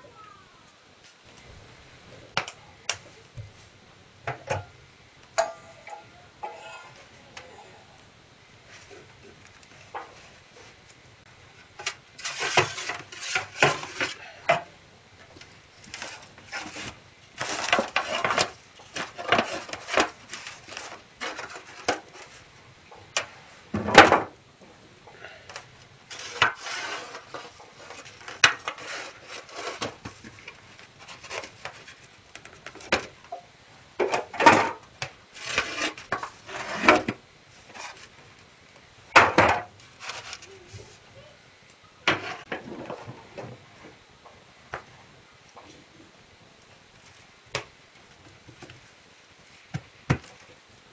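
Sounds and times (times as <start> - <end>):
metal baking tins clattering: 11.8 - 14.2.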